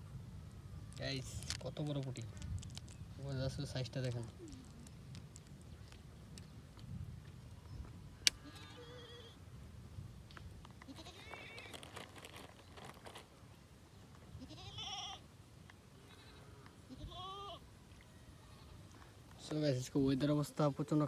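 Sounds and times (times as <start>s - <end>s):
goat bleating: 10.9s - 11.7s, 14.4s - 15.2s, 16.1s - 17.6s.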